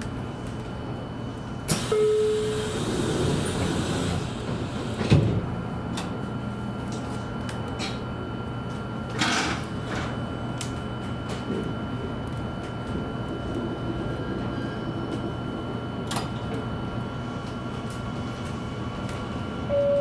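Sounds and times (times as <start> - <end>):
train doors thumping shut: 2.8 - 5.5.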